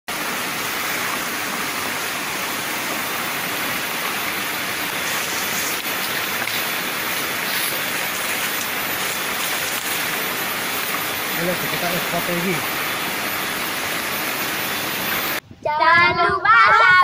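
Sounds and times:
flowing river water: 0:00.1 - 0:15.4
leaves rustling: 0:00.2 - 0:15.4.

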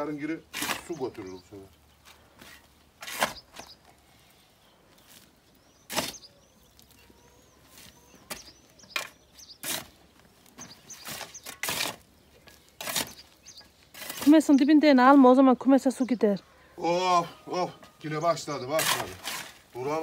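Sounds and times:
shovel striking stony soil: 0:02.4 - 0:03.7, 0:05.9 - 0:06.3, 0:08.3 - 0:10.0, 0:10.6 - 0:13.2, 0:18.8 - 0:19.6.

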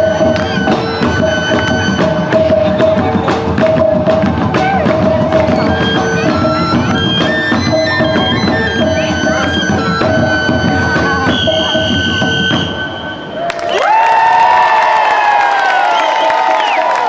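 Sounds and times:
rapid drumming: 0:00.0 - 0:13.3
high held tone: 0:00.0 - 0:13.8.

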